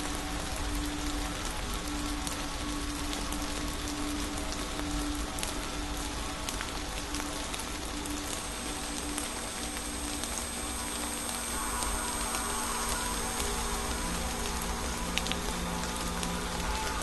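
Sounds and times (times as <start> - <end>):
crackling hiss with clicks: 0.0 - 17.0
thin high whine: 8.7 - 17.0.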